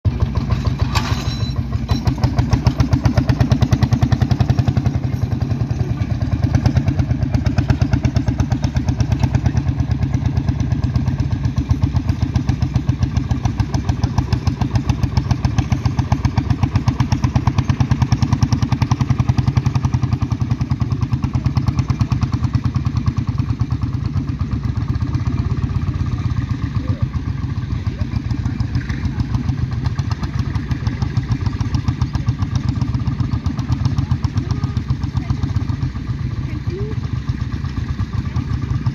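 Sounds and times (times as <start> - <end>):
tractor engine exhaust pops: 0.1 - 26.8.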